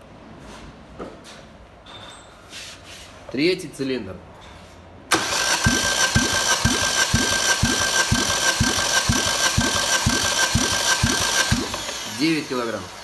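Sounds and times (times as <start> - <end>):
engine cranking on starter: 5.1 - 13.0.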